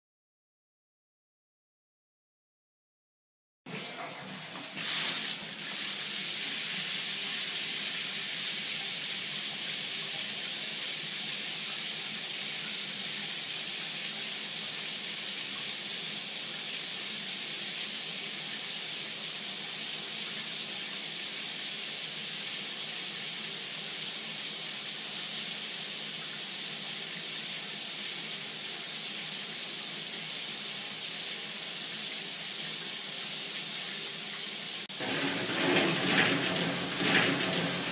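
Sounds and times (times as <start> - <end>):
shower water spraying: 3.9 - 8.2, 34.5 - 37.9.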